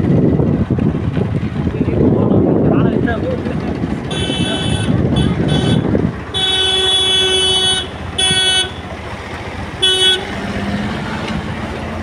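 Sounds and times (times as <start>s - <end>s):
road and engine noise: 0.0s - 12.0s
vehicle horn honking: 4.1s - 8.9s, 9.8s - 10.3s.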